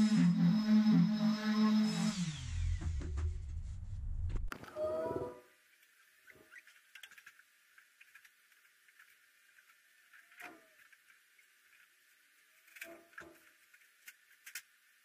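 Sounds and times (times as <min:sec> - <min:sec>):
power tool winding down: 0:00.0 - 0:03.0.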